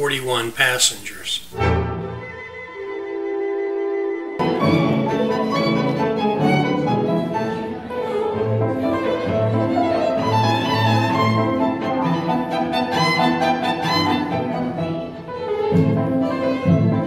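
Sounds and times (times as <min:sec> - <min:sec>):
violin and cello chamber music: 0:04.4 - 0:17.0.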